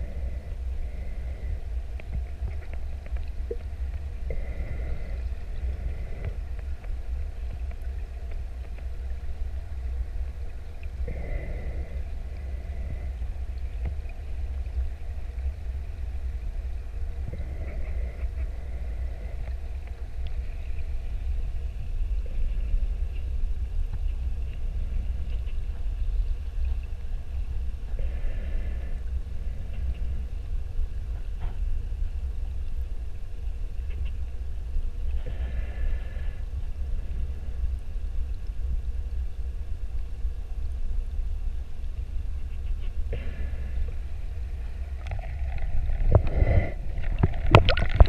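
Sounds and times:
underwater low rumble: 0.0 - 48.0
faint underwater clicks: 0.1 - 48.0.

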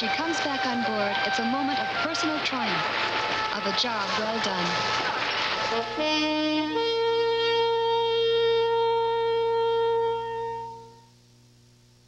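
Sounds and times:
wind instruments holding a chord: 0.0 - 11.1.

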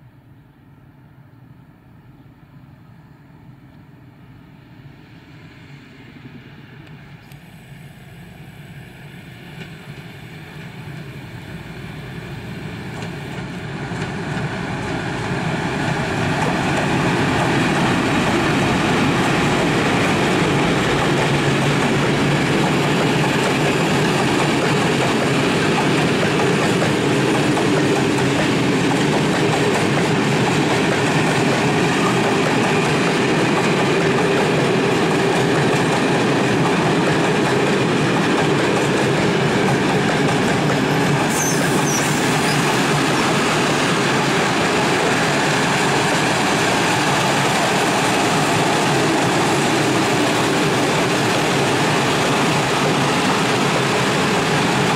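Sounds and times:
freight train approaching: 0.0 - 54.9
wagon wheels rumbling on rail: 12.4 - 54.9.

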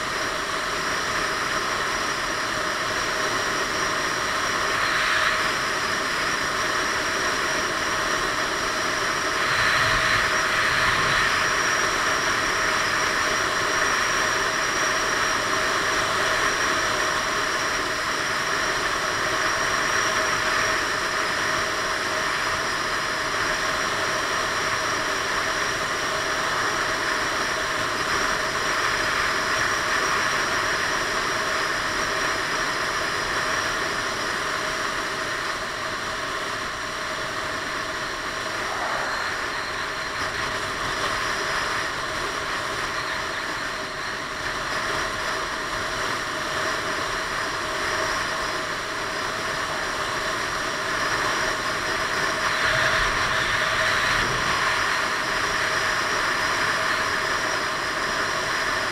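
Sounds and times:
faint steady hum: 33.4 - 45.8.

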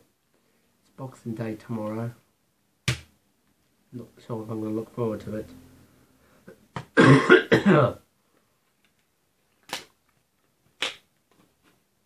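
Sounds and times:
man coughing: 6.9 - 8.0.

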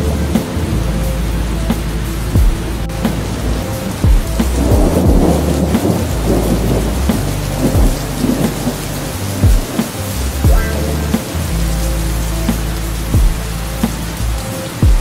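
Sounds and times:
heavy rain: 0.0 - 15.0
thunder rumbling: 0.0 - 15.0
short low thuds: 4.1 - 5.4, 7.1 - 8.6.

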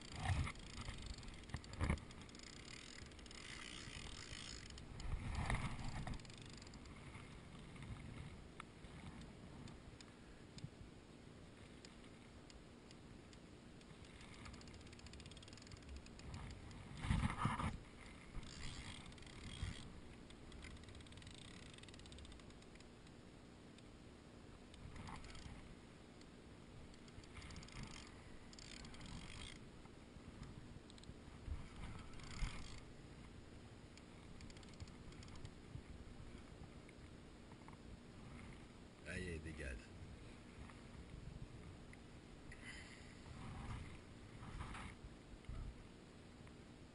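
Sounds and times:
fishing reel cranking: 0.0 - 6.9, 13.8 - 16.8, 18.4 - 22.9, 24.8 - 25.6, 26.9 - 29.6, 31.8 - 32.9, 34.0 - 35.5.

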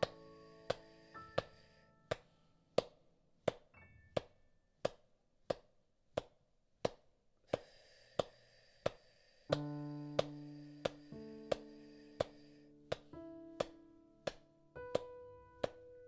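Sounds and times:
soft piano: 0.0 - 4.9, 9.5 - 16.0
hand claps: 0.0 - 7.6, 8.2 - 10.4, 12.2 - 15.8.

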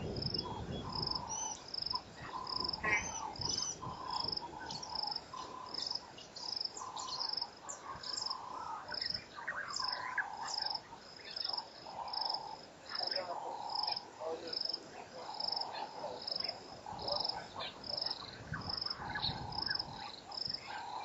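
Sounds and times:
chorus of wavering animal calls: 0.0 - 21.0.

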